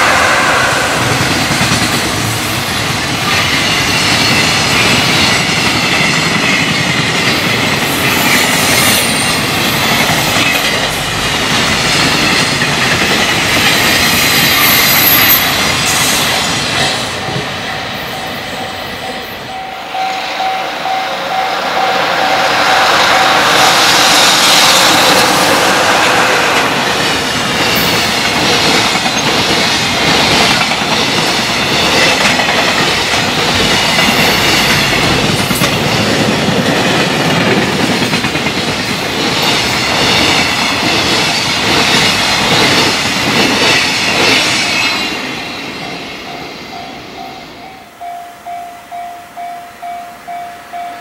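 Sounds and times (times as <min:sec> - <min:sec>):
freight train rushing past: 0:00.0 - 0:51.0
wheels clickety-clack on rail joints: 0:01.6 - 0:18.1, 0:24.2 - 0:46.4
level-crossing alarm ringing: 0:17.2 - 0:26.0, 0:44.2 - 0:51.0.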